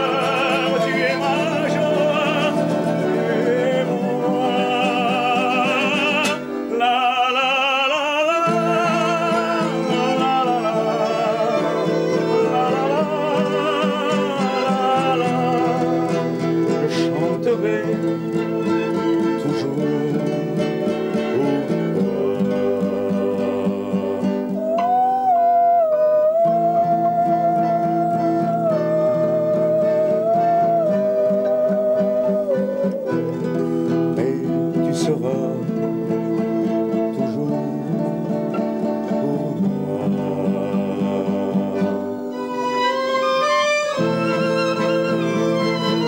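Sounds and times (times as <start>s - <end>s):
fiddle melody: 0.0s - 46.0s
plucked acoustic guitar: 0.0s - 46.0s
held bending guitar note: 22.2s - 34.0s.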